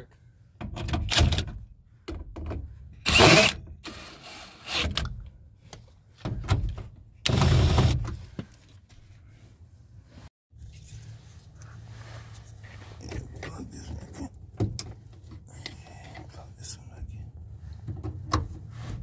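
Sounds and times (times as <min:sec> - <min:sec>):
power drill driving bolts: 0:03.0 - 0:05.1.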